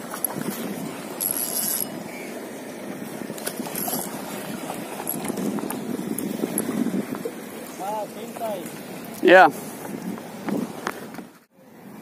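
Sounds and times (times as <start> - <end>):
water washing: 0.0 - 11.4
fishing reel cranking: 1.2 - 1.9, 3.6 - 4.1.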